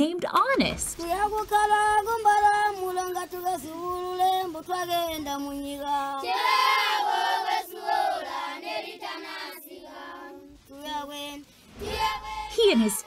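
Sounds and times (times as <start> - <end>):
children singing together: 5.8 - 12.8.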